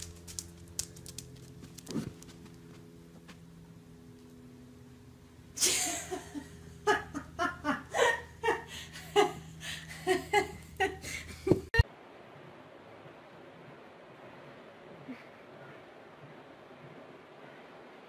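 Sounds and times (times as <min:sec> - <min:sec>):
faint steady hum: 0:00.0 - 0:18.0
person laughing: 0:05.6 - 0:11.8.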